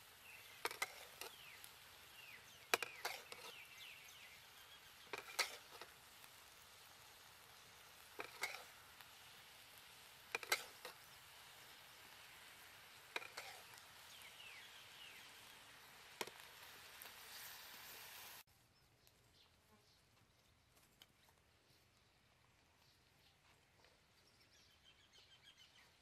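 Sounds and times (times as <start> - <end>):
meat sizzling in a wok: 0.0 - 18.5.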